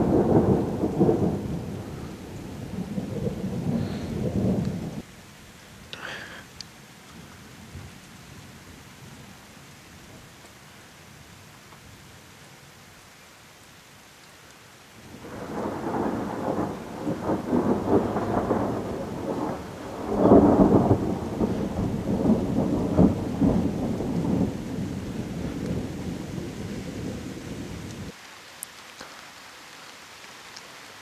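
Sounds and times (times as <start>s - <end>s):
thunder rumbling: 0.0s - 5.1s, 15.1s - 28.2s
rain falling: 0.0s - 31.0s.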